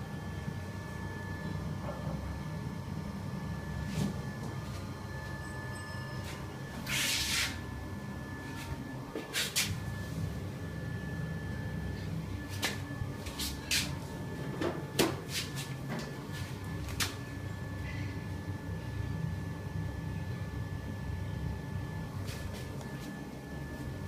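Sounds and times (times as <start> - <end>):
exhaust fan humming: 0.0 - 24.0
faint high steady tone: 3.4 - 6.8.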